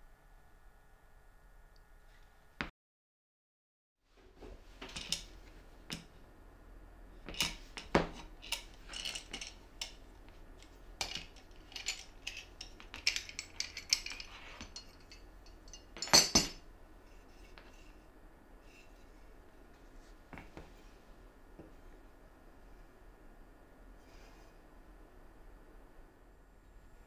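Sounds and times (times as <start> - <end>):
metal clamp clattering: 7.3 - 10.0, 10.6 - 16.6
metal clamp clicks and rattles: 10.6 - 16.5.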